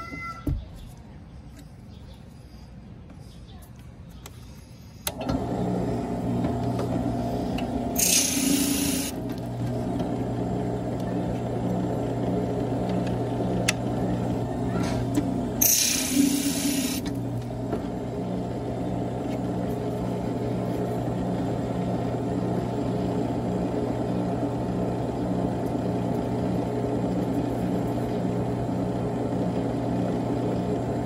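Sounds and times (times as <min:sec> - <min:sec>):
drill press motor humming: 0:05.0 - 0:31.0
drill cutting into clay chip: 0:06.4 - 0:09.5, 0:14.8 - 0:17.5.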